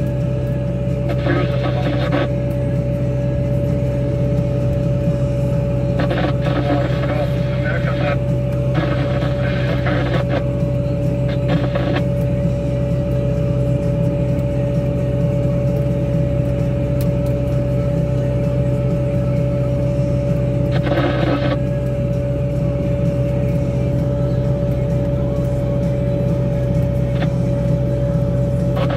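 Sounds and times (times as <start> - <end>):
diesel engine running under load: 0.0 - 28.9.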